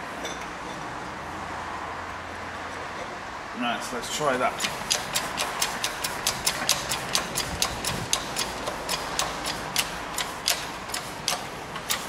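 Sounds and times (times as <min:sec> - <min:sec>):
hydraulic press pump clicks: 0:04.6 - 0:12.0.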